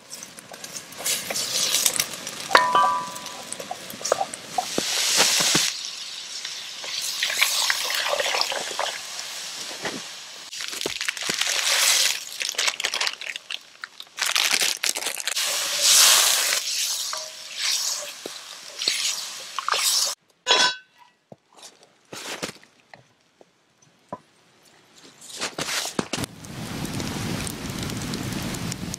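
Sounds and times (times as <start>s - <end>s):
stew sizzling and steam hissing: 0.0s - 12.6s, 15.3s - 20.2s.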